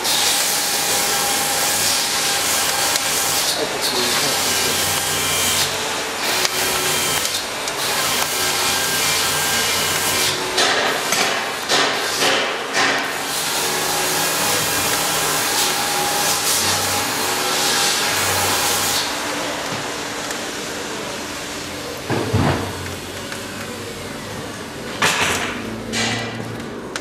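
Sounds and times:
wood fire crackling: 0.2s - 11.8s.

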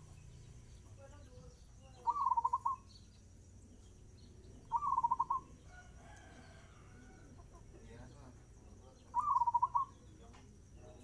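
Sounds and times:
faint bird calls: 0.0s - 11.0s
dove cooing: 2.0s - 2.9s, 4.5s - 7.6s, 9.1s - 10.1s.

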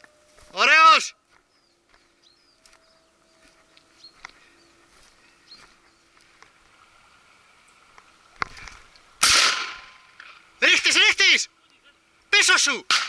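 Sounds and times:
loud shotgun shot: 9.2s - 10.0s.

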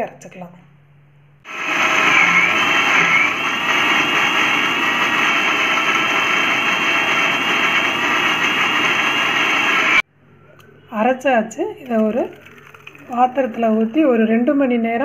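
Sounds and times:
mixer grinder running: 1.5s - 10.0s.

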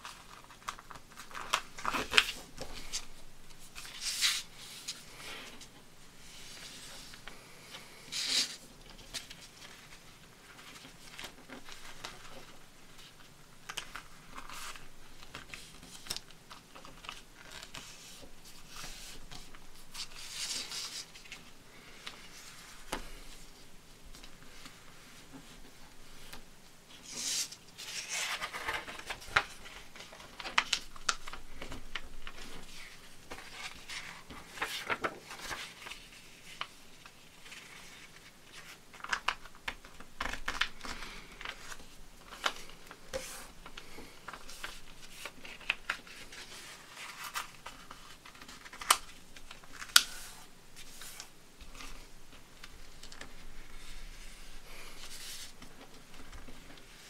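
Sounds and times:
paper rustling and crinkling: 0.0s - 57.0s
crisp paper clicks: 38.6s - 50.3s.

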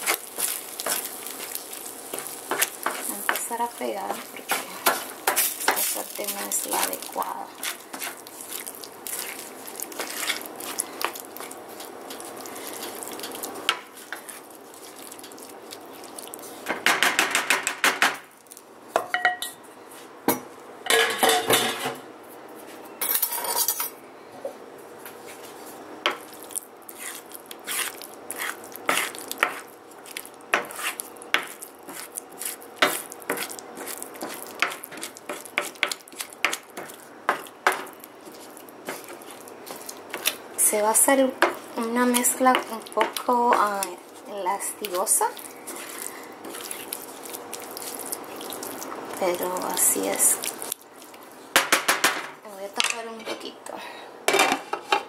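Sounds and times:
wooden spoon scraping a skillet: 0.0s - 16.8s, 26.9s - 29.7s, 30.5s - 51.6s.

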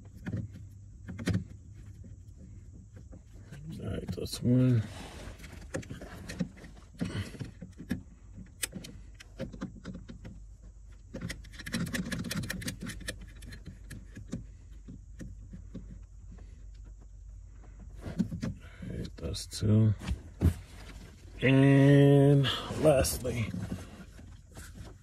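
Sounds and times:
handling and rustling: 19.8s - 25.0s.

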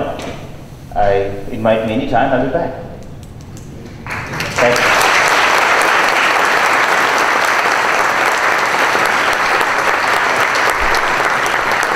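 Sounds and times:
audience applauding: 4.0s - 11.9s.

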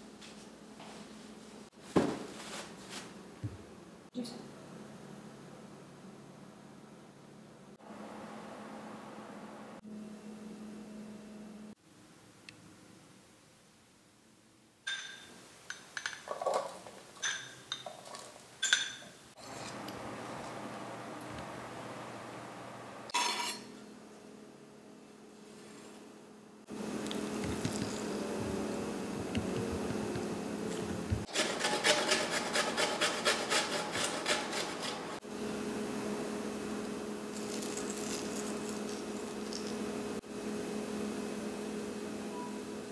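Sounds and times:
spoon clinking on ceramic bowl: 14.9s - 16.2s
food grated on kitchen grater: 31.3s - 35.2s.

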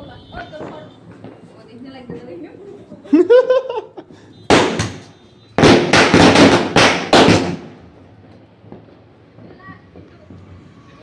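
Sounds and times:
firecrackers bursting: 4.4s - 11.0s.

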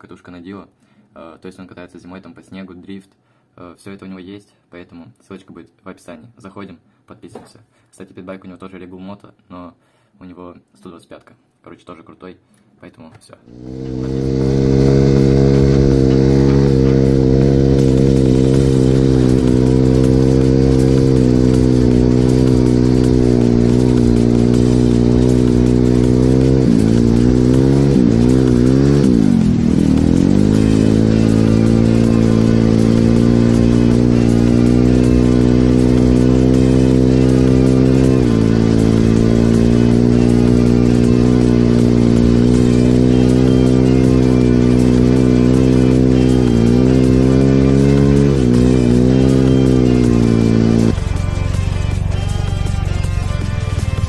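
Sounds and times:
motorcycle engine revving: 13.5s - 54.0s
music: 13.7s - 54.0s.

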